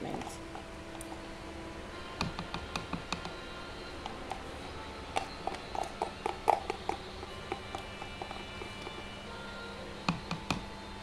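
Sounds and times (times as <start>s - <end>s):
spoon tapping plastic jar: 2.1s - 3.4s, 4.0s - 9.0s, 10.0s - 10.8s.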